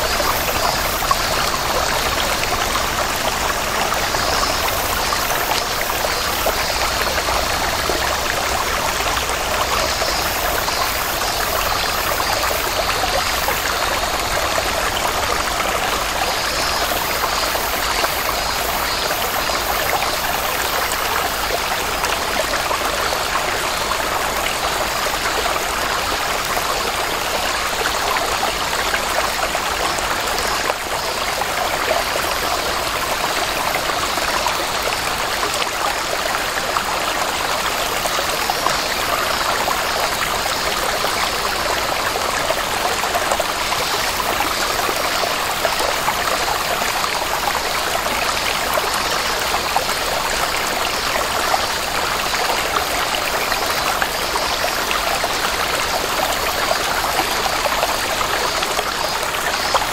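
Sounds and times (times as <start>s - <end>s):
stream trickling over rocks: 0.0s - 59.9s.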